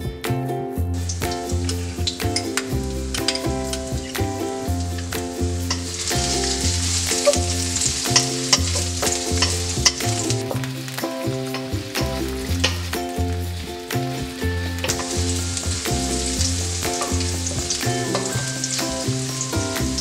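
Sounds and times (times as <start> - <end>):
background music: 0.0 - 20.0
garlic sizzling in hot oil: 1.0 - 20.0
wooden spatula scraping a wok: 1.1 - 10.9.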